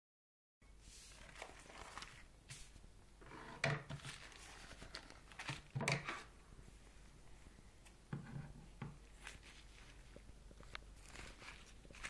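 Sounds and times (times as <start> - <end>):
plastic bag rustling: 0.8 - 6.4, 9.0 - 12.0.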